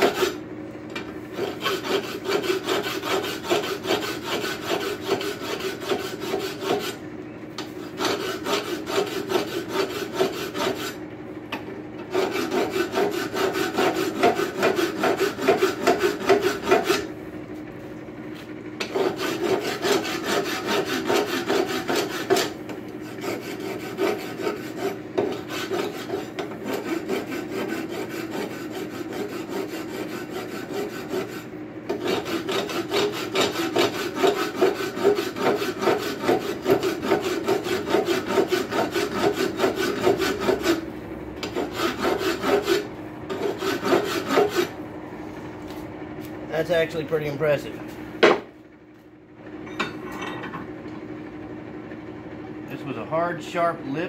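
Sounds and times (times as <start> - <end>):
rasp scraping metal: 0.0 - 0.4, 1.3 - 7.0, 7.6 - 11.0, 12.0 - 17.1, 18.8 - 44.8.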